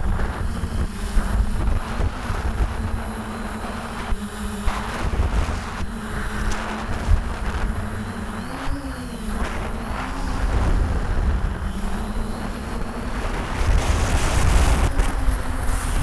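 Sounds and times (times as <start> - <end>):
drone motors humming: 0.0 - 16.0.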